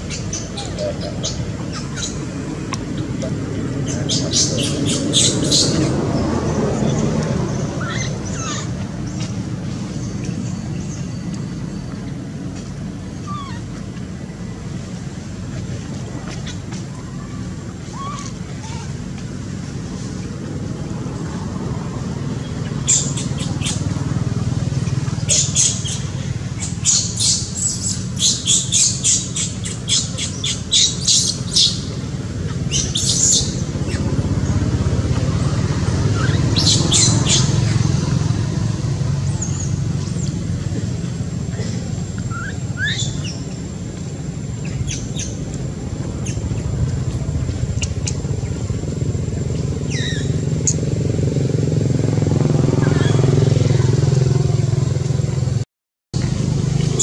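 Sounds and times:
steady low rumble: 0:00.0 - 0:55.6
high-pitched calls and squeaks: 0:07.5 - 0:09.3, 0:13.2 - 0:13.7, 0:42.3 - 0:43.4.

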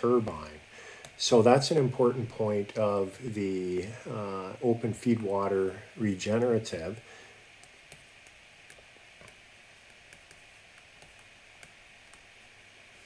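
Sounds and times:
low hiss: 0:00.0 - 0:13.0
stylus tapping on tablet: 0:07.6 - 0:12.3.

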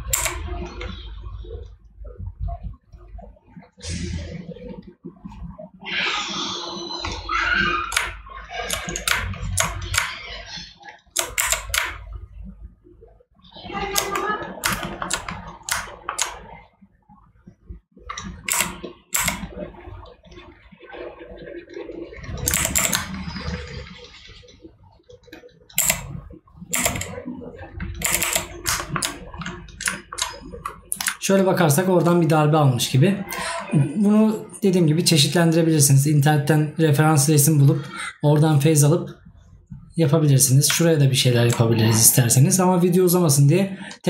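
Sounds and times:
computer keyboard keys clicking: 0:00.0 - 0:00.4, 0:07.9 - 0:10.2, 0:11.2 - 0:12.0, 0:14.0 - 0:16.4, 0:18.1 - 0:19.7, 0:22.3 - 0:23.5, 0:25.3 - 0:27.2, 0:27.9 - 0:31.2.

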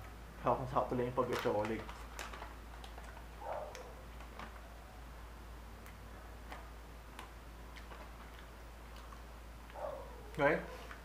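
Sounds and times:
plastic snack pouch crinkling: 0:01.0 - 0:04.8.

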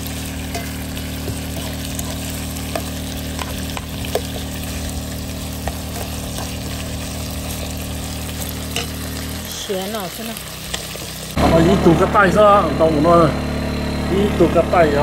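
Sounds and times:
food sizzling in a wok: 0:00.0 - 0:11.5.

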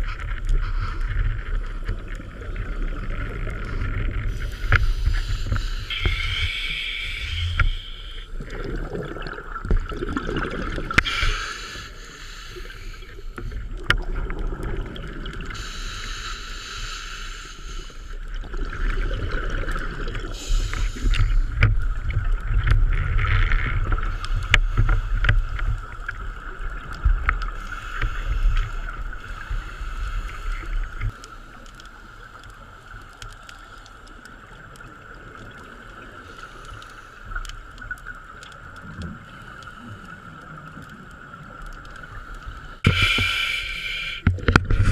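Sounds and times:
muffled low underwater rumble: 0:00.0 - 0:44.9
steady thin whine: 0:03.7 - 0:08.4.

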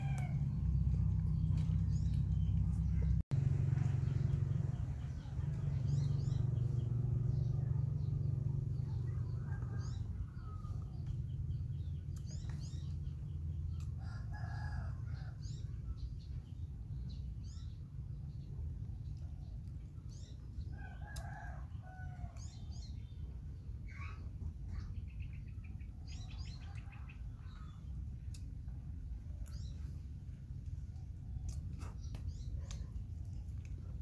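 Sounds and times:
rooster crowing: 0:00.0 - 0:00.6
low steady rumble: 0:00.0 - 0:34.0
small birds chirping: 0:00.0 - 0:34.0.

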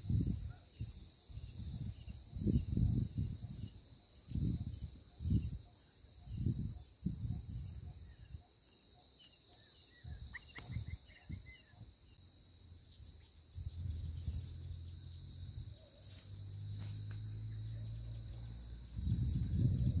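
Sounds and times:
faint bird chirps: 0:00.0 - 0:20.0
high-pitched insect buzz: 0:00.0 - 0:20.0.

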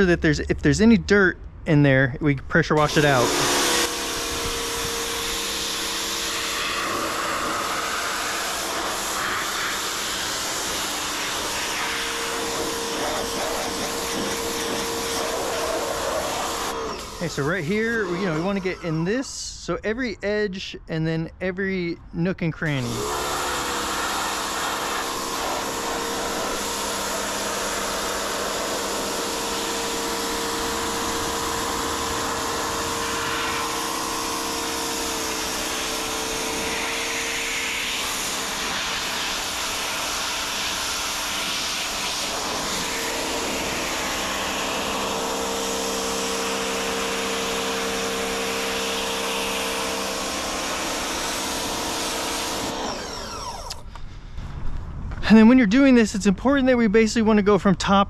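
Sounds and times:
pressure washer motor hum: 0:02.8 - 0:19.1, 0:22.8 - 0:53.9
water jet hissing: 0:02.8 - 0:19.1, 0:23.0 - 0:49.7.

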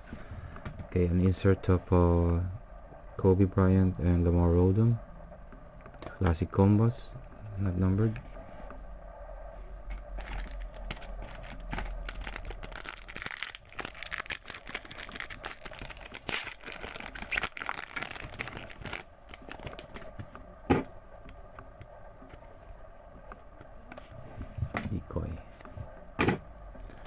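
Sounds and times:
plastic wrapper crinkling: 0:10.2 - 0:20.1.

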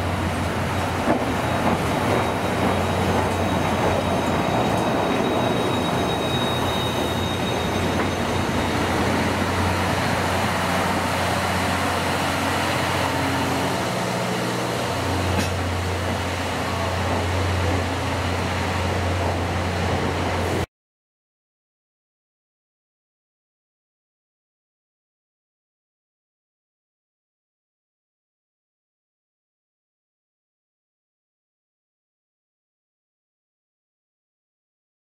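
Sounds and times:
train wheels rumbling on rails: 0:00.0 - 0:20.6
thin high squeal: 0:02.2 - 0:09.0.

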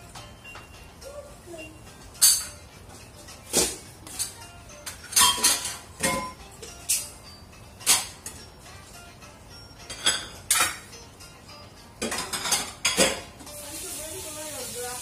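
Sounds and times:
metal kitchenware clinking: 0:02.1 - 0:02.6, 0:03.4 - 0:07.2, 0:07.8 - 0:08.5, 0:09.8 - 0:11.0, 0:12.0 - 0:13.4
knocks of pans: 0:03.5 - 0:06.4, 0:09.9 - 0:10.9, 0:12.0 - 0:13.4.

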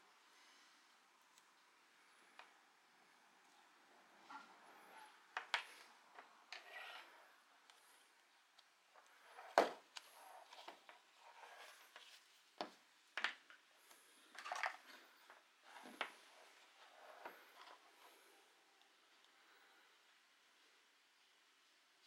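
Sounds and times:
soft rustling: 0:03.4 - 0:18.5.

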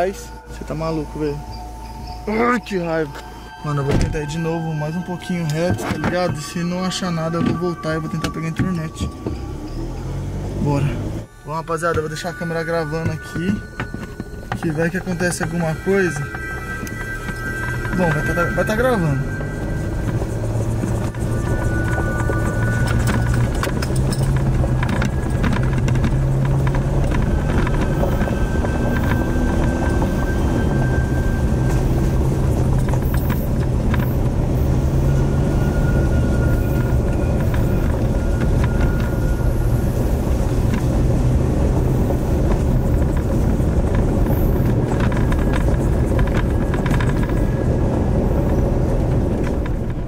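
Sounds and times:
car engine hum: 0:00.0 - 0:50.0
road noise: 0:00.0 - 0:50.0
knocks and rattles: 0:11.8 - 0:34.6, 0:41.9 - 0:50.0.

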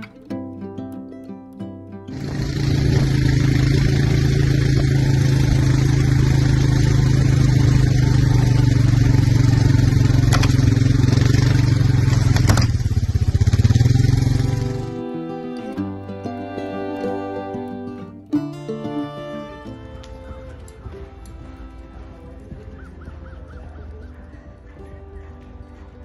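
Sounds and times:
small vehicle engine humming: 0:02.1 - 0:26.0.

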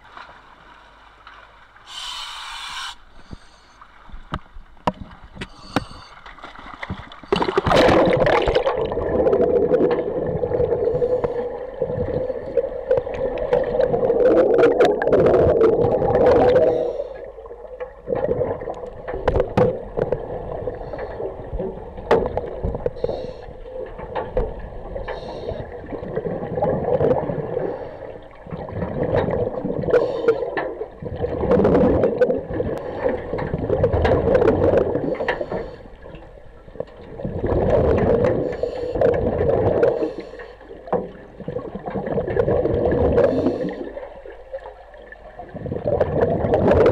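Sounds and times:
underwater regulator bubbles gurgling: 0:07.1 - 0:46.9.

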